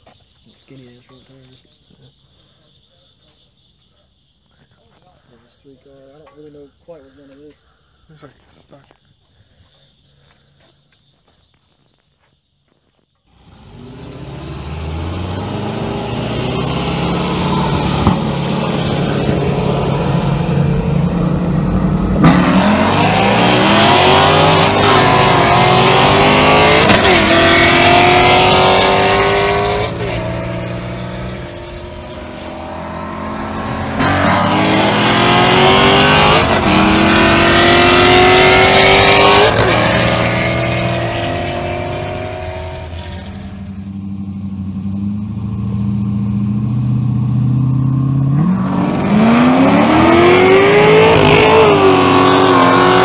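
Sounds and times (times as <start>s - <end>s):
sports car engines at full throttle: 13.3s - 53.0s.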